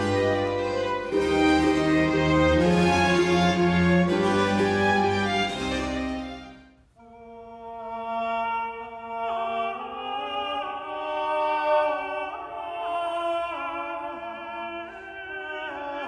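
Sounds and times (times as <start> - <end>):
classical music: 0.0 - 6.8.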